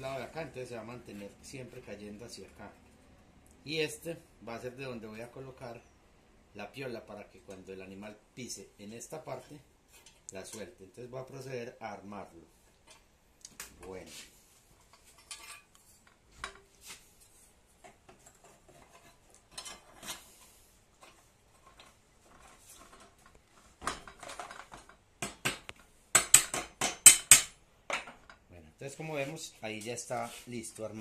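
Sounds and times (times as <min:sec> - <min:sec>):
metal clinks and scrapes: 0:14.8 - 0:25.0.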